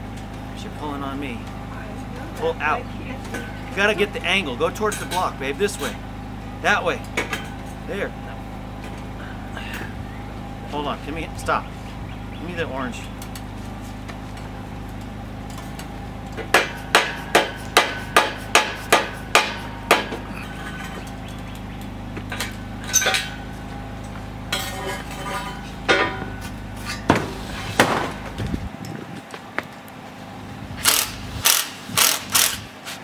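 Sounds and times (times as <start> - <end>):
hammer striking metal: 16.5 - 21.1, 24.5 - 28.0.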